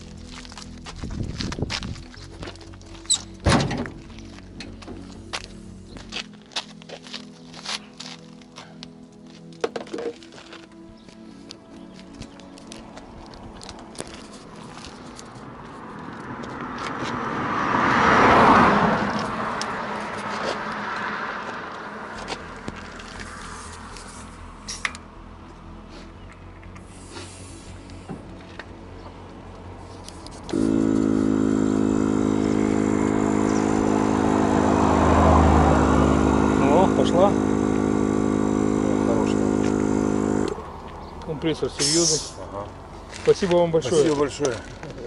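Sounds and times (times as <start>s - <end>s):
vehicle passing: 13.0s - 24.6s, 29.2s - 45.0s
air compressor droning: 30.5s - 40.9s.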